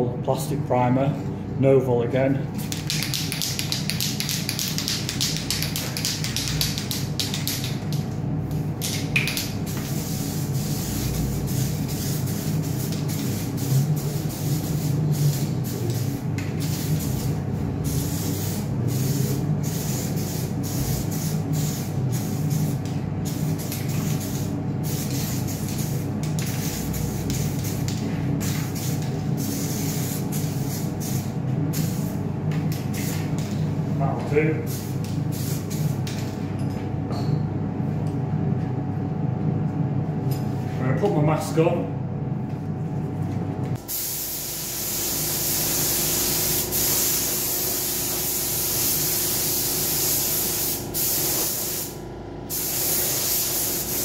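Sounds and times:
steady low hum: 0:00.0 - 0:54.0
aerosol can spraying: 0:02.7 - 0:08.0, 0:09.0 - 0:32.0, 0:43.9 - 0:51.9, 0:52.5 - 0:54.0.

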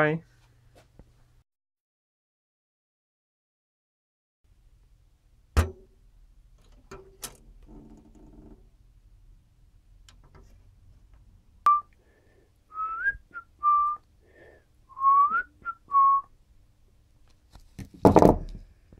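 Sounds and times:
person whistling a tune: 0:11.7 - 0:12.0, 0:12.7 - 0:14.0, 0:14.9 - 0:16.3.

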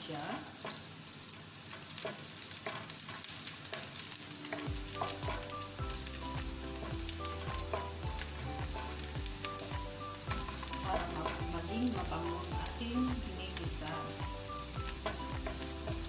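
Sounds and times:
onion and garlic sizzling in oil: 0:00.0 - 0:16.0
wooden spoon scraping a wok: 0:01.7 - 0:12.0, 0:14.8 - 0:16.0
background music with low beat: 0:04.4 - 0:16.0.

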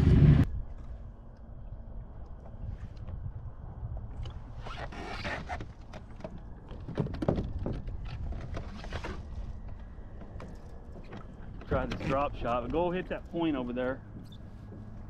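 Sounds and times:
steady low rumble: 0:00.0 - 0:04.6.

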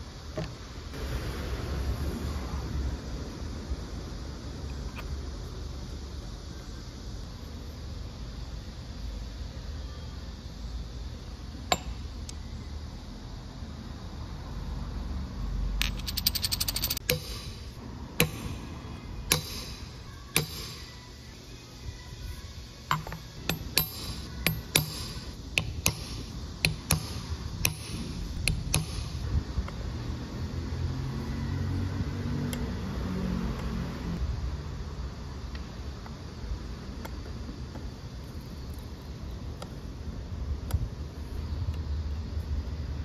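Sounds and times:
metal tools clicking on stone: 0:15.8 - 0:17.4.

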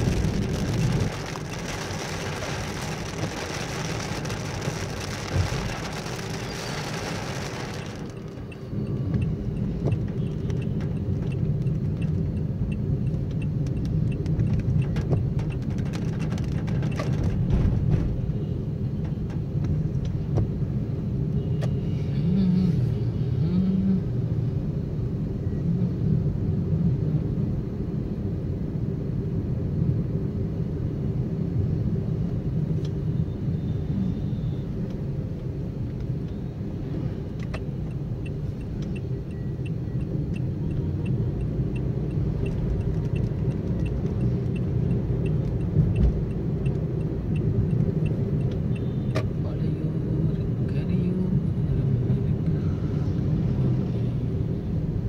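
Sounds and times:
car driving on wet road: 0:00.0 - 0:20.8, 0:34.8 - 0:55.0.

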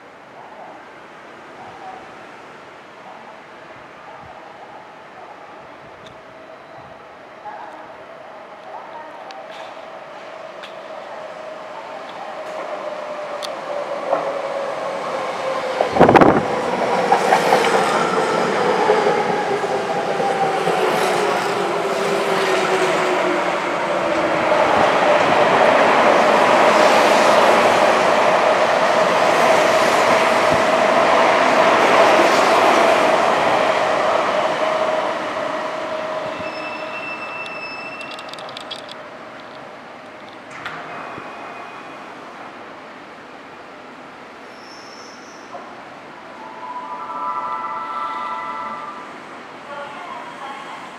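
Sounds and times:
train hum: 0:00.0 - 0:44.6
train wheel clatter: 0:36.3 - 0:41.4.

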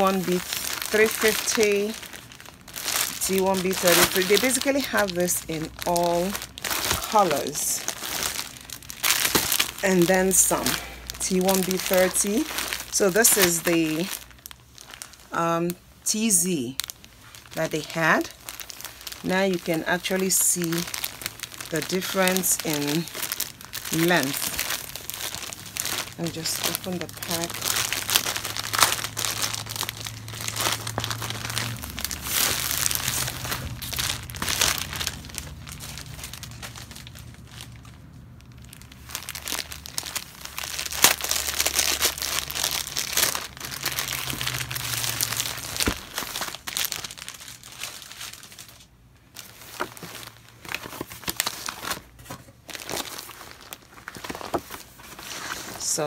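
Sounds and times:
synthetic hair being handled: 0:00.0 - 0:15.4, 0:38.7 - 0:56.0
plastic packaging crinkling: 0:00.0 - 0:56.0.

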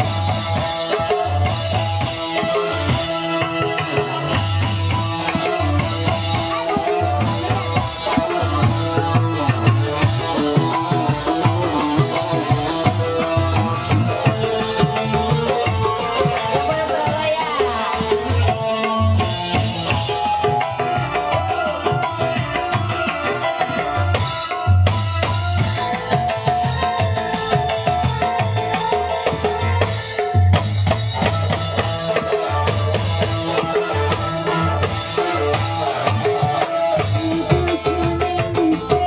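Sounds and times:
electric guitar: 0:00.0 - 0:39.0
hand drums: 0:00.0 - 0:39.0
keyboard: 0:00.0 - 0:39.0.

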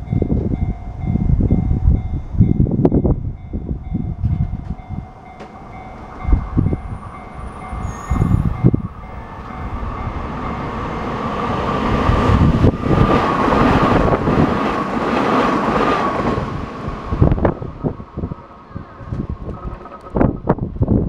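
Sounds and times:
steady high tone: 0:00.0 - 0:12.8
electric train rumbling: 0:00.0 - 0:21.0.

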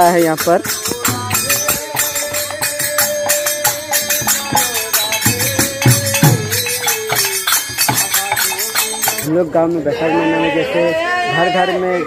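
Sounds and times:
metal hand cymbals clashing: 0:00.0 - 0:09.3.

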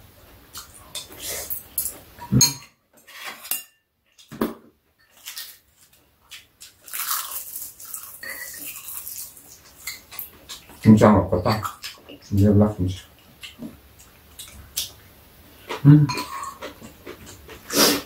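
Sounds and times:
utensils clinking on bowls: 0:00.9 - 0:03.8, 0:06.9 - 0:12.3, 0:16.1 - 0:16.9.

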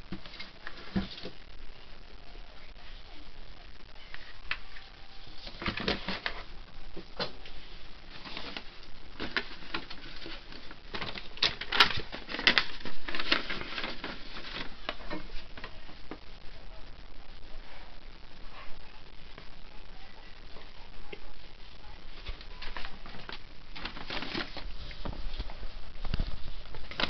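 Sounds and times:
paper rustling and crinkling: 0:00.1 - 0:01.4, 0:04.1 - 0:06.5, 0:07.2 - 0:15.9, 0:22.1 - 0:27.0.

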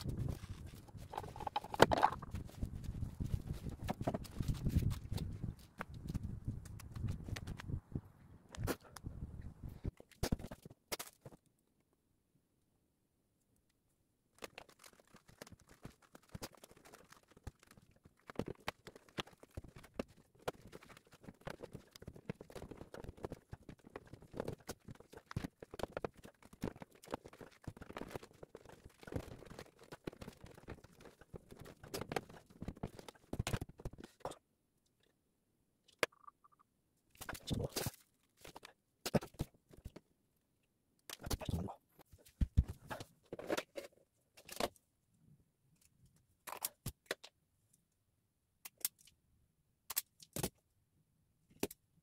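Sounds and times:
hands handling wires and fittings: 0:00.0 - 0:07.7.

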